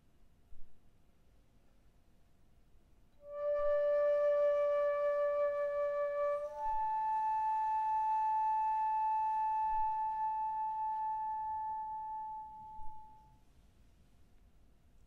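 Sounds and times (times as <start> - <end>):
bamboo flute long held note: 3.2 - 13.3.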